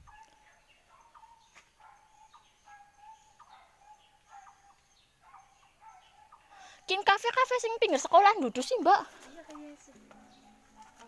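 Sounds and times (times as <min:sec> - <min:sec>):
faint bird calls: 0:00.0 - 0:06.9.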